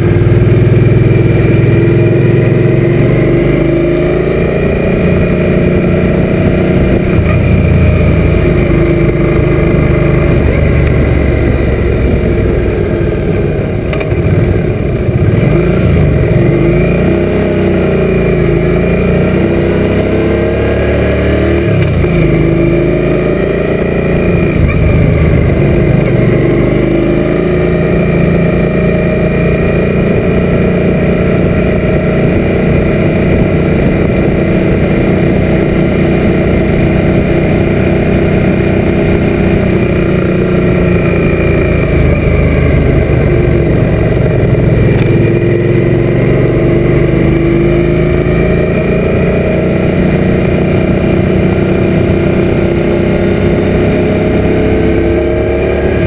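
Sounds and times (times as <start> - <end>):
motorcycle engine running: 0.0 - 56.0
heavy wind noise: 4.5 - 16.6, 29.8 - 45.7.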